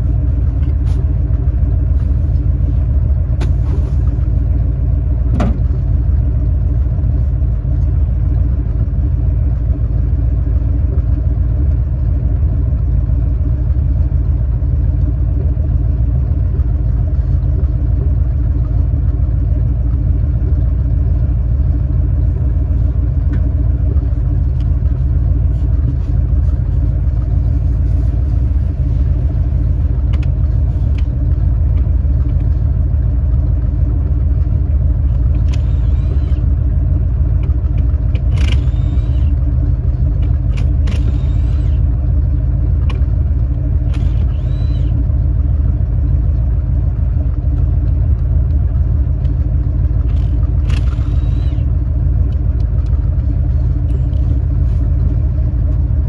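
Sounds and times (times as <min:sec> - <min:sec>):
truck engine rumbling: 0:00.0 - 0:56.0.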